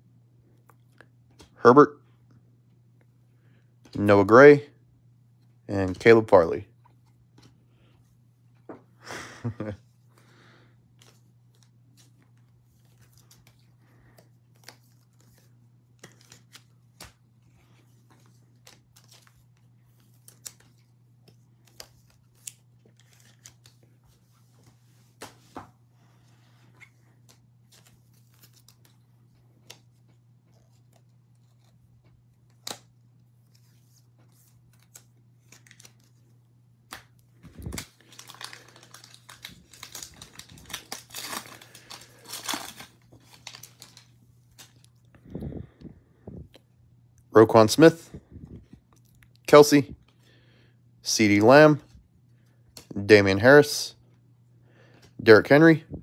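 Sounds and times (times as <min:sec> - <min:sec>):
low steady hum: 0:00.0 - 0:56.0
foil wrapper crinkling and tearing: 0:34.6 - 0:36.1, 0:36.9 - 0:44.9.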